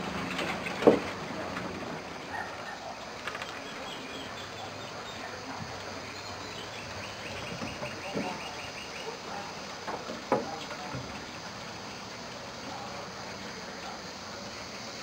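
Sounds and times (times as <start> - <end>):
outdoor background noise: 0.0 - 15.0
puppies scrambling on wooden steps: 0.1 - 4.8, 5.5 - 11.8.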